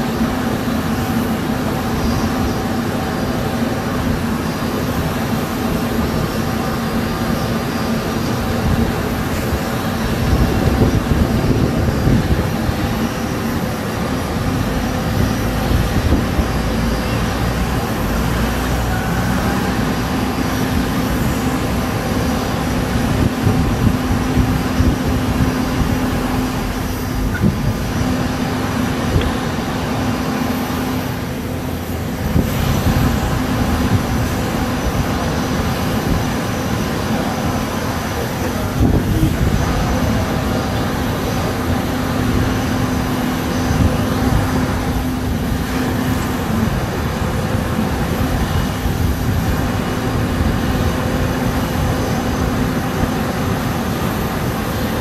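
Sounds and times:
machinery drone: 0.0 - 55.0.

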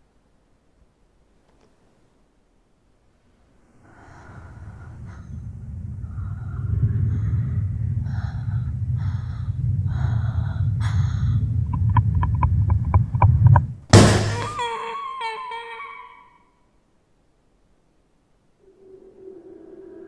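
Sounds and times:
low rumbling drone: 3.8 - 13.9, 18.5 - 20.0
sudden loud hit: 13.9 - 14.6
wavering high screech: 18.6 - 20.0.

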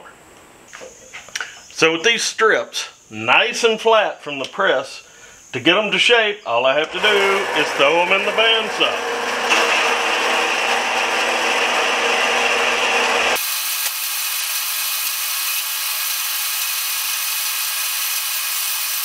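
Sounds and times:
bandsaw cutting steel: 6.9 - 19.0.

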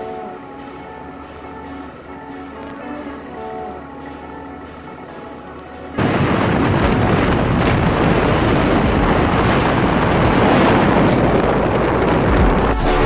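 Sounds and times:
faint background music: 0.0 - 13.0
wind rushing on microphone: 6.0 - 13.0.

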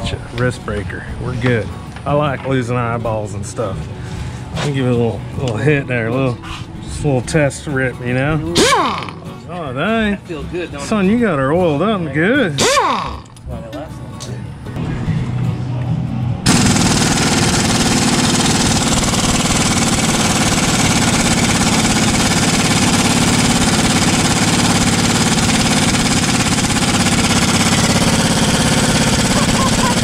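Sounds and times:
pneumatic impact wrench hammering: 8.6 - 9.2, 12.6 - 13.4, 16.5 - 30.0.

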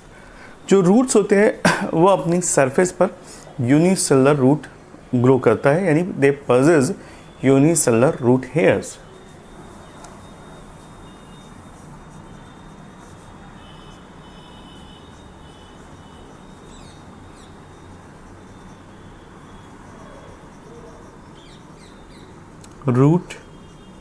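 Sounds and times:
marker squeaking on whiteboard: 6.8 - 24.0
faint high chirps: 7.0 - 24.0.

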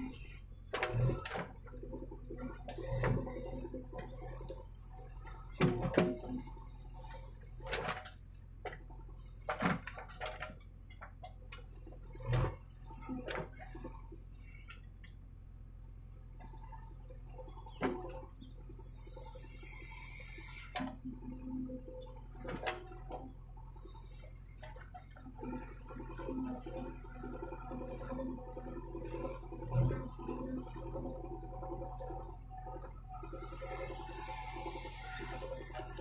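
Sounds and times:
backhoe engine running: 0.0 - 36.0
faint bird or insect chirps: 12.6 - 22.3, 22.9 - 36.0.

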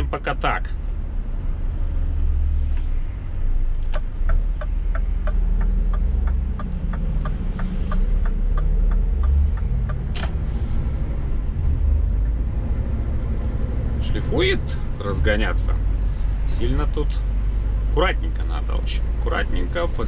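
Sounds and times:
diesel truck drone: 0.0 - 20.0
light regular ticking: 3.8 - 10.2.

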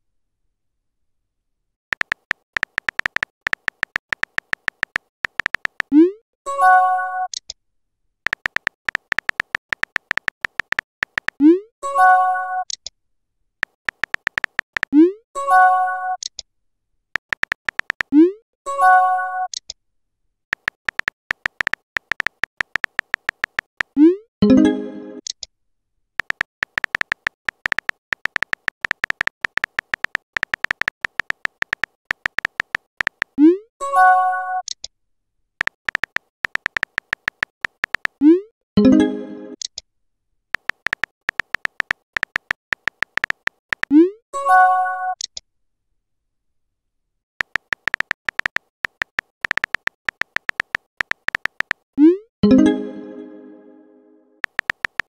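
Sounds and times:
phone keyboard tap clicks: 1.9 - 5.9, 8.3 - 11.4, 13.6 - 14.9, 17.2 - 18.1, 20.5 - 23.9, 26.2 - 33.4, 35.6 - 38.2, 40.6 - 43.9, 47.4 - 51.8, 54.4 - 55.0
high blips: 2.0 - 6.1.

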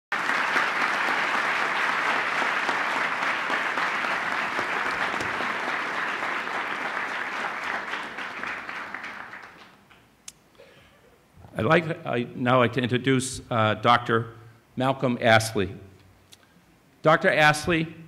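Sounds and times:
audience applauding: 0.1 - 10.0.

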